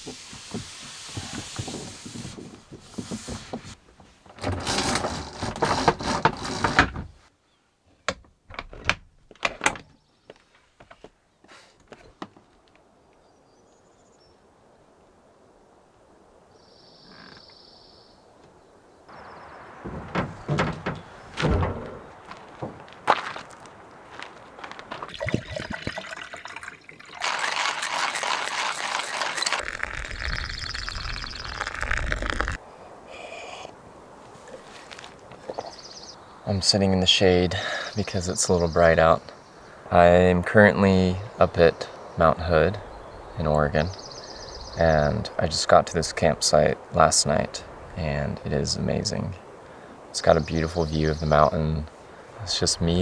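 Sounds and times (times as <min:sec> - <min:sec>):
door latch clicks and knocks: 0:08.1 - 0:09.9, 0:19.9 - 0:22.0
water trickling into dripper: 0:25.1 - 0:31.9.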